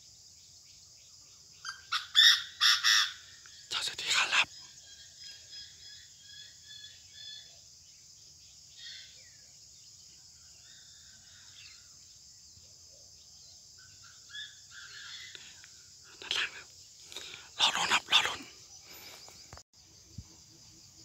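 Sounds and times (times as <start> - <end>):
high insect buzz: 13.2 - 21.0.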